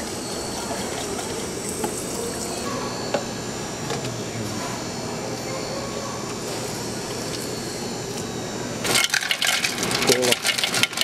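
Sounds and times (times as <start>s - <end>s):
water running from faucet: 8.8s - 11.0s.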